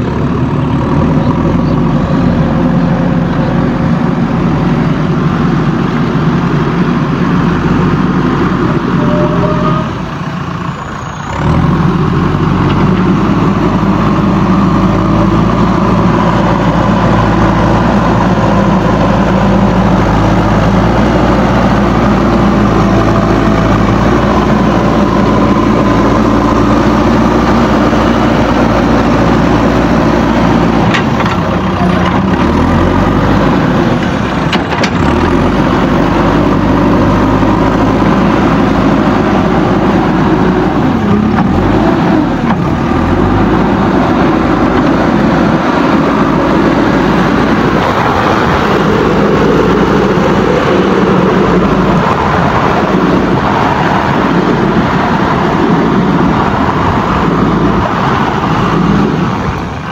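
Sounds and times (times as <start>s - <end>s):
diesel engine running: 0.0s - 59.9s.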